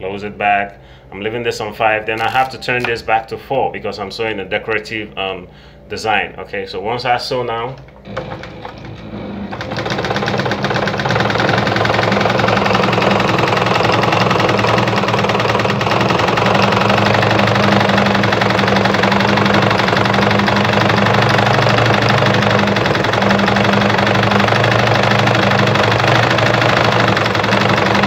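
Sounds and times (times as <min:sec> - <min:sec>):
sewing machine running: 0:08.0 - 0:28.0.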